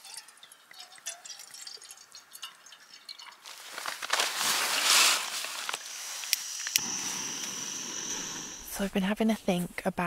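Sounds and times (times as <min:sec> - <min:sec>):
gas burner noise: 0:05.7 - 0:08.9
gas stove hissing: 0:05.8 - 0:09.2.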